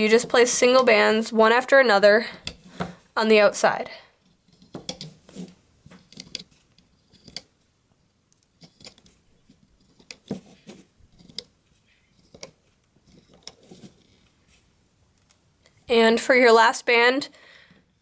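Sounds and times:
rubber bands clicking on pegs: 0:02.3 - 0:03.0, 0:04.3 - 0:05.2, 0:05.9 - 0:07.6, 0:08.3 - 0:14.3.

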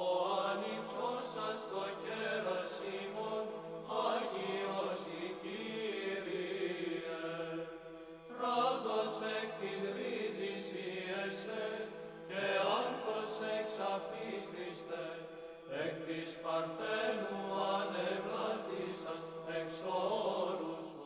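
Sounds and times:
voices chanting a melody: 0:00.0 - 0:07.6.

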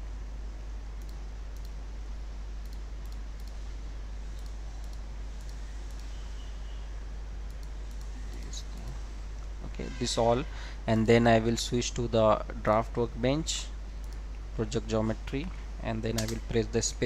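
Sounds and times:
low electrical hum: 0:00.0 - 0:17.0
computer mouse clicking: 0:01.0 - 0:01.8, 0:02.6 - 0:03.6, 0:04.3 - 0:06.2, 0:07.5 - 0:09.0.

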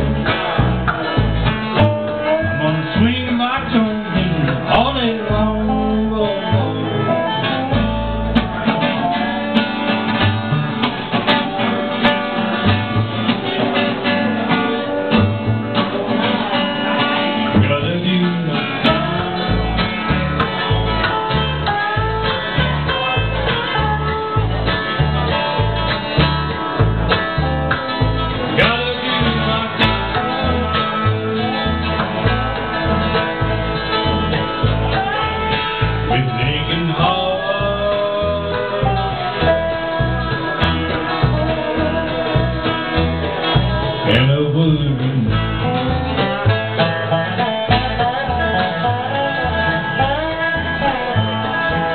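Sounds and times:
mandolin: 0:00.0 - 0:51.9
plucked upright bass: 0:00.0 - 0:51.9
strummed acoustic guitar: 0:00.0 - 0:51.9
man singing: 0:01.8 - 0:09.2, 0:17.4 - 0:19.9, 0:28.4 - 0:32.0, 0:34.6 - 0:51.9.

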